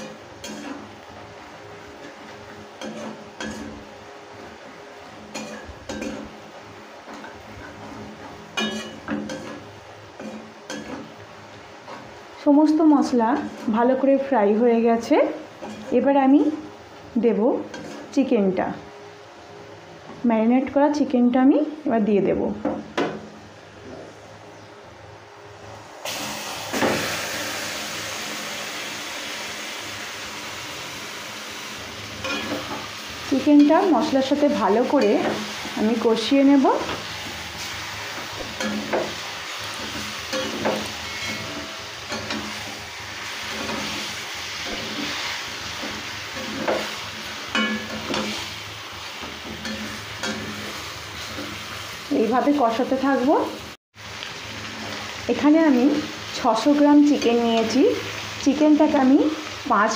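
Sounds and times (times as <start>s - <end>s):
metal spatula scraping metal pan: 0.0s - 0.9s, 8.6s - 9.6s, 17.7s - 18.1s, 38.5s - 42.7s, 43.3s - 48.4s
chicken sizzling in hot oil: 0.0s - 18.6s, 26.0s - 59.9s.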